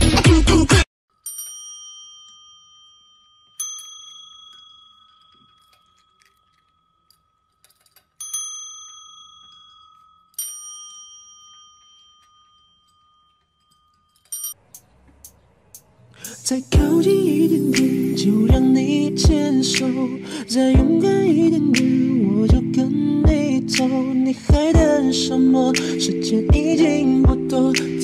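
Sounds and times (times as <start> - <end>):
service bell dinging: 1.2 - 7.6.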